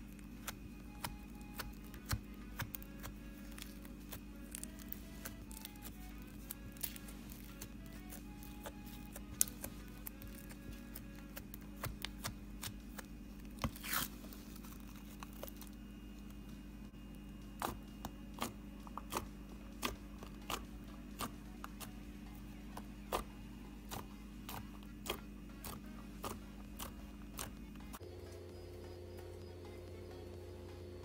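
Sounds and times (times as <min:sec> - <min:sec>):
crackling slime squish: 0:00.0 - 0:16.4.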